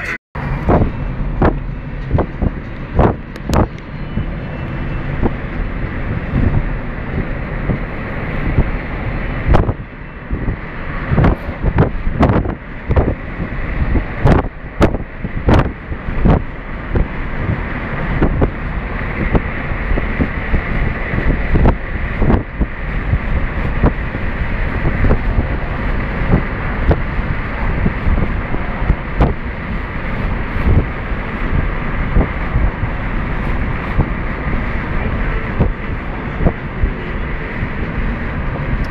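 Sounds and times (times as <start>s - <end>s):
vehicle low rumble: 0.0s - 38.9s
wind buffets and knocks: 0.0s - 38.9s
wind on microphone: 0.0s - 38.9s.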